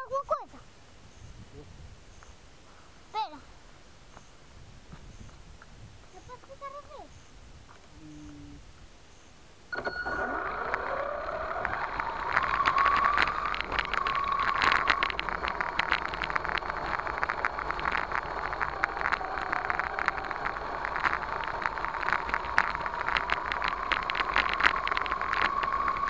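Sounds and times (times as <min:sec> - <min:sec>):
electric motor whine: 0:09.7 - 0:26.0
tyres crackling on dirt: 0:09.7 - 0:26.0.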